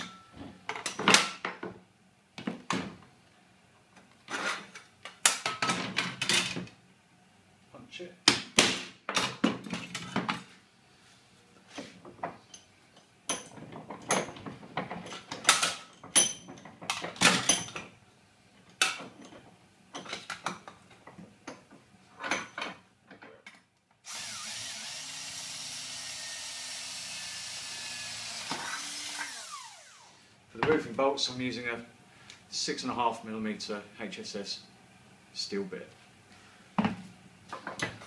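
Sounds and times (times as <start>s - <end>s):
cordless drill boring steel: 24.0s - 30.2s.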